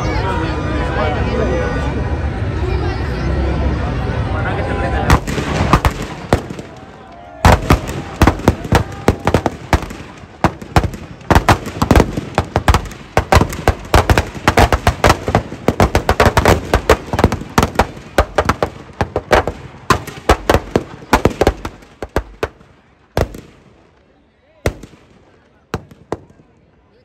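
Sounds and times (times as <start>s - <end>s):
firecrackers banging: 5.0s - 24.1s, 24.7s - 26.6s.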